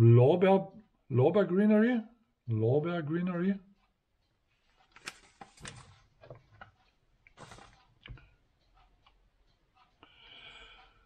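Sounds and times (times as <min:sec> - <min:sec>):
plastic packet rustling: 0:07.4 - 0:07.9.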